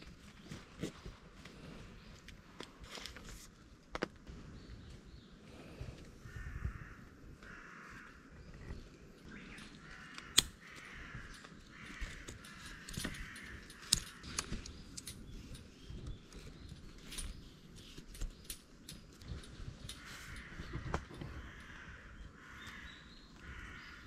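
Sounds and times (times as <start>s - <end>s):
crow cawing: 6.3s - 8.4s, 9.4s - 14.4s, 19.9s - 24.0s
rope and carabiner clicks: 8.5s - 21.4s.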